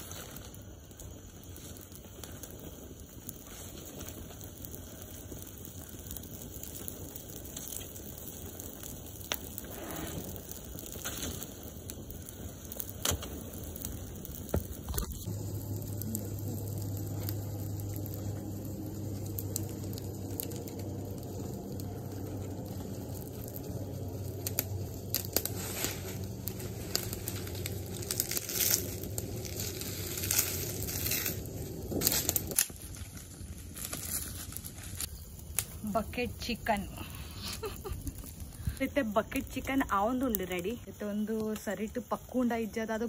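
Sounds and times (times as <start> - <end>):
fire crackling and snapping: 0.0 - 43.0
steady low hum: 11.5 - 41.1.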